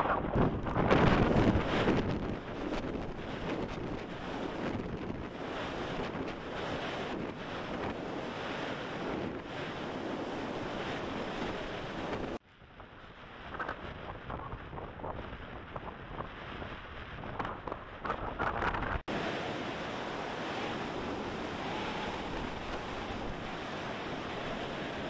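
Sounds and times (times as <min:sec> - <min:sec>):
gusting wind buffeting microphone: 0:00.0 - 0:25.0
wind rushing past microphone: 0:00.0 - 0:25.0.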